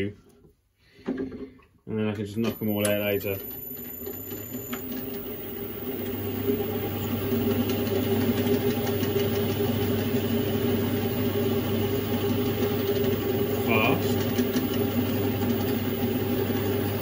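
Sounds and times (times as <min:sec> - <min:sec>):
lathe humming: 0:02.4 - 0:17.0.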